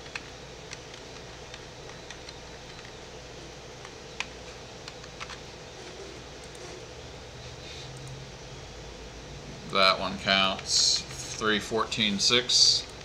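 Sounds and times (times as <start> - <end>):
keyboard and mouse clicks: 0.0 - 3.0, 3.8 - 5.4
steady background hum: 0.0 - 13.0.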